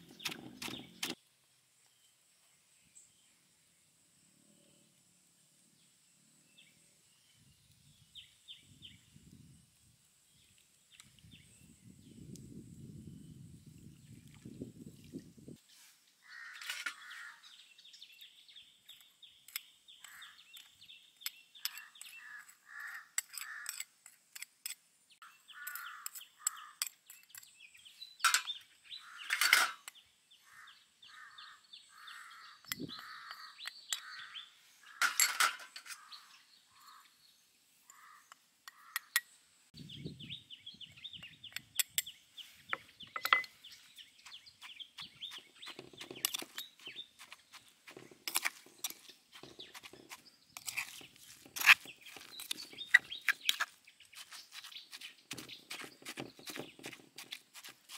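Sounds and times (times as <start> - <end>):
birds calling: 0.0 - 1.2, 16.2 - 23.8, 25.1 - 57.9.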